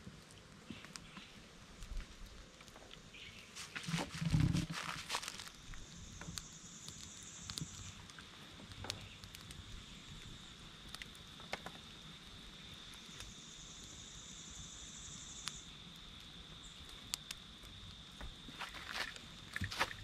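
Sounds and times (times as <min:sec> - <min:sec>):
insects trilling: 0:02.4 - 0:20.0
faint clicks: 0:15.4 - 0:18.3.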